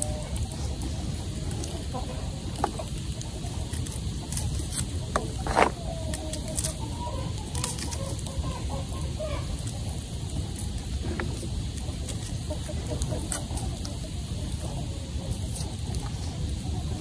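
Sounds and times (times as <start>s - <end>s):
chickens clucking: 0.0s - 17.0s
chicken squawk: 5.3s - 10.2s.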